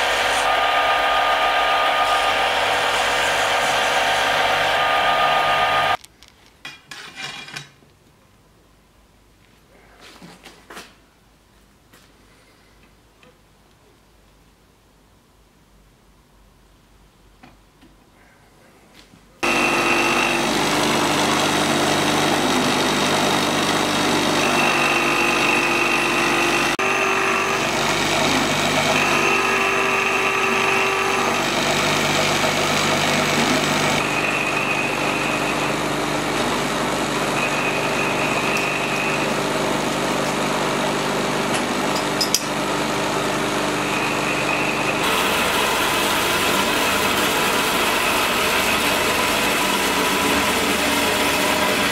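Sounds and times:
band saw whining: 0.0s - 6.0s, 19.4s - 51.9s
metalworking machine humming: 0.0s - 6.0s, 19.4s - 51.9s.

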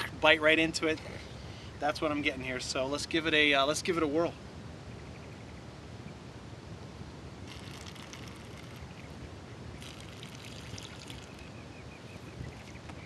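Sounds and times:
outdoor background hiss: 0.0s - 13.0s
wine being slurped: 7.5s - 9.0s, 9.8s - 11.5s.

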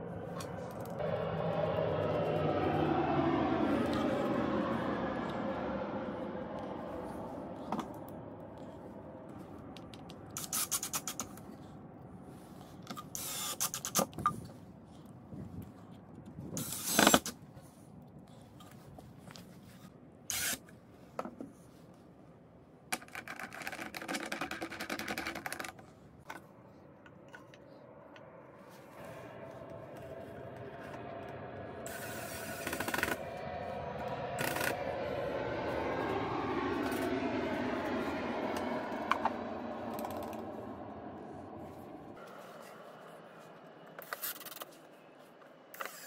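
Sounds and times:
cordless drill driving screws: 13.2s - 14.1s, 20.3s - 20.6s.

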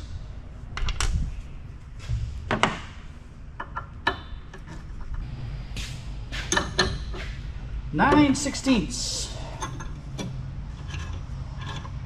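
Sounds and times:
tools and metal parts clicking: 6.4s - 7.2s, 9.4s - 12.0s.

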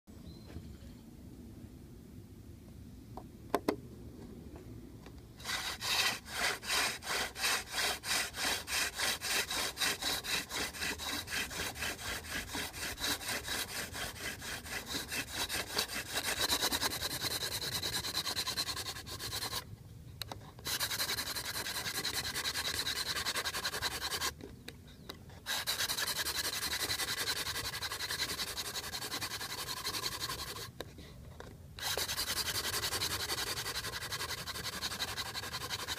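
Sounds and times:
wood-on-wood rubbing of hand drill: 5.4s - 19.6s, 20.6s - 24.4s, 25.4s - 30.7s, 31.8s - 35.9s.

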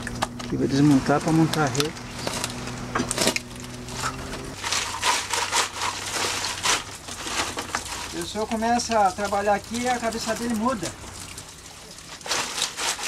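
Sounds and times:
shells crunching and clattering: 1.5s - 9.3s.

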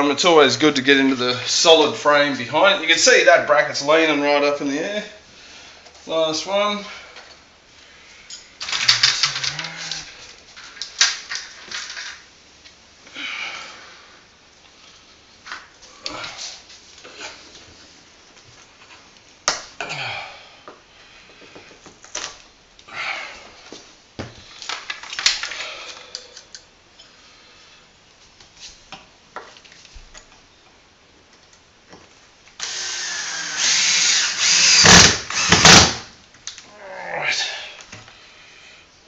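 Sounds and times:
cordless drill driving a screw: 32.6s - 36.0s.

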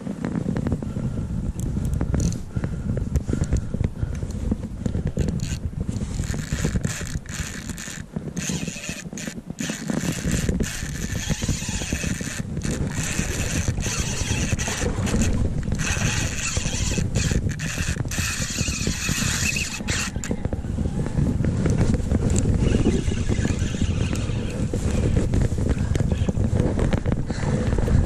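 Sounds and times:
microphone handling noise: 0.0s - 28.0s
wind rumble: 0.0s - 28.0s
spinning reel turning: 5.2s - 20.4s, 22.3s - 25.1s.

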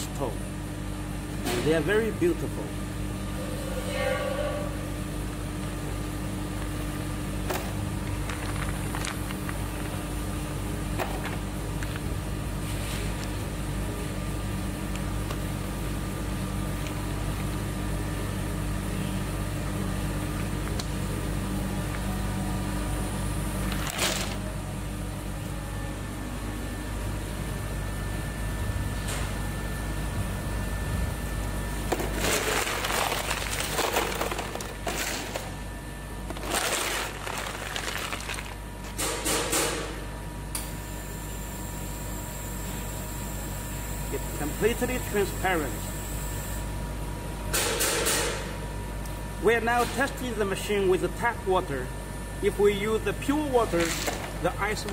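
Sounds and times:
ice machine humming: 0.0s - 39.2s, 40.8s - 46.9s, 50.3s - 54.9s
ice rattling in plastic scoop: 8.2s - 9.9s, 32.0s - 35.3s, 36.3s - 38.6s.

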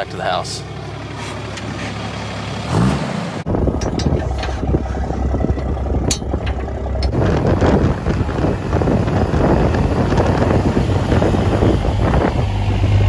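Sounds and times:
pickup truck engine idling: 0.0s - 2.7s, 3.4s - 13.0s
wind buffeting microphone: 3.5s - 13.0s.

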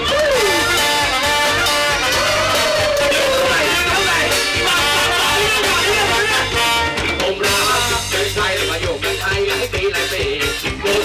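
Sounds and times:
horn section playing: 0.0s - 8.7s
drums: 0.0s - 11.0s
guitar: 0.0s - 11.0s.

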